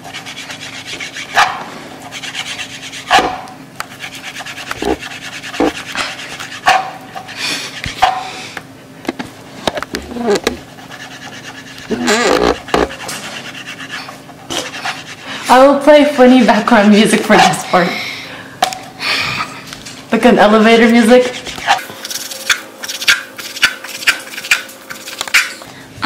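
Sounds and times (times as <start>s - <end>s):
knife slicing on plastic cutting board: 5.6s - 5.9s.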